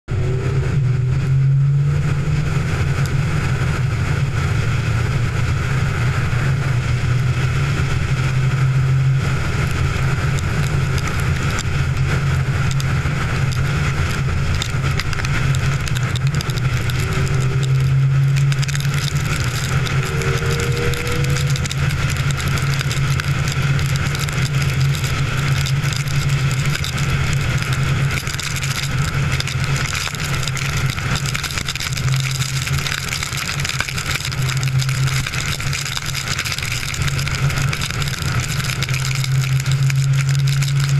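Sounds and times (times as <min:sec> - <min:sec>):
car road and engine drone: 0:00.0 - 0:40.9.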